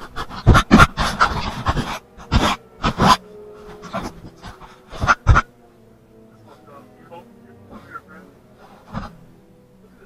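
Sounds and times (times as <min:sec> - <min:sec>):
person panting hard: 0:00.0 - 0:05.5, 0:07.5 - 0:09.3.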